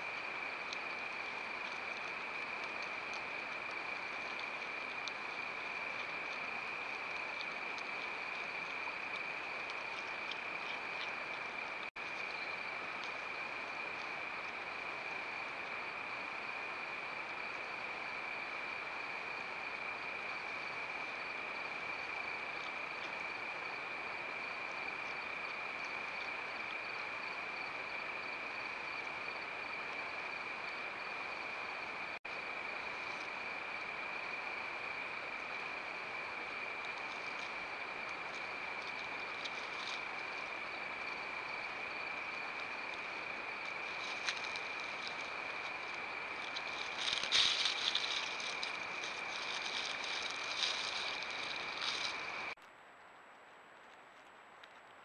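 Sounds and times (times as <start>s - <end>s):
faint ticks: 0.0s - 16.4s
crickets trilling: 0.0s - 52.6s
microphone hiss: 0.0s - 55.0s.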